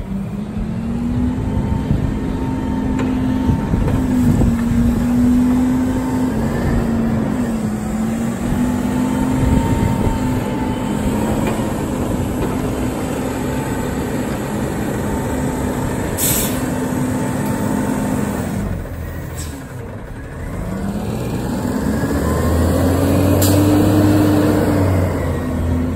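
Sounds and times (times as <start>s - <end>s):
hydraulic arms whining: 0.0s - 20.9s
garbage truck diesel engine: 0.0s - 25.9s
air hissing: 16.2s - 16.7s.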